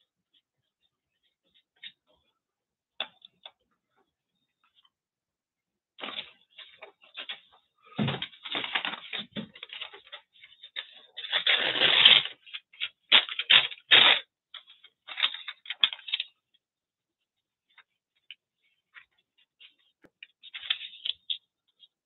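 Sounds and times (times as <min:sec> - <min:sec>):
paper rustling and crinkling: 0:06.0 - 0:16.4, 0:17.7 - 0:22.0.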